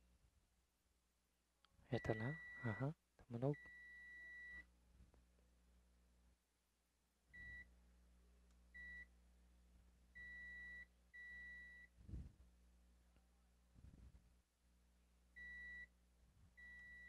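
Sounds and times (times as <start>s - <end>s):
multimeter continuity beeps: 1.9s - 4.7s, 8.8s - 9.1s, 10.2s - 11.9s, 15.4s - 15.9s, 16.6s - 17.0s.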